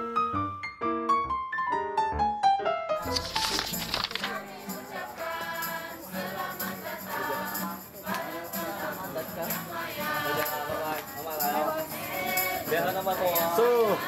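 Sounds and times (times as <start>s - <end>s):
shaker: 3.0s - 14.0s
voices singing: 4.2s - 14.0s.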